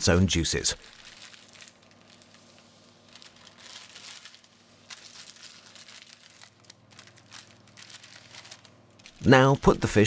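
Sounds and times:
parchment paper crinkling: 0.8 - 9.8.

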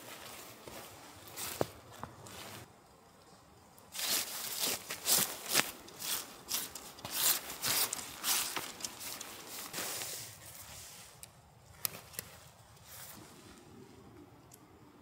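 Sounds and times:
tent fabric rustling and crinkling: 0.0 - 2.7, 3.9 - 13.6
tent pole scraping: 3.9 - 11.1.

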